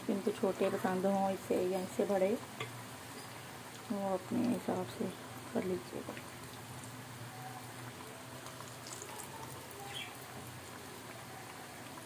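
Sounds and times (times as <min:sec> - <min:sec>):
deep-frying sizzle: 0:00.0 - 0:12.0
faint crackles: 0:02.6 - 0:12.0.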